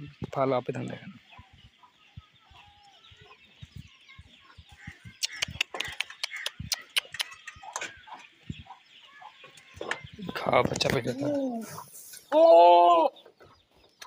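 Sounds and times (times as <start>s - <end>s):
chickens clucking softly: 1.1s - 12.4s.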